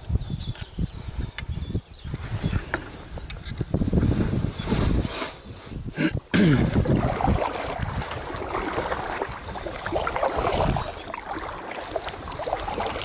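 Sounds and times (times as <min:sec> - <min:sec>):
wind buffeting microphone: 0:00.0 - 0:13.0
water sloshing around kayak: 0:06.7 - 0:13.0.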